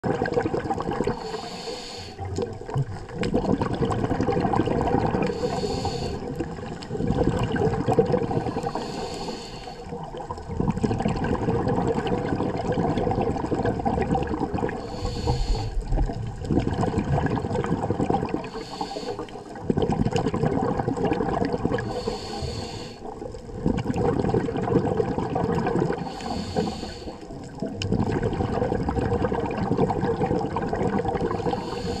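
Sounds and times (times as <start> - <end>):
exhaled air bubbling: 0.0 - 32.0
regulator inhale hiss: 1.1 - 2.3, 5.2 - 6.4, 8.4 - 10.0, 14.8 - 15.9, 18.5 - 19.6, 21.8 - 23.1, 26.0 - 27.3, 31.4 - 32.0.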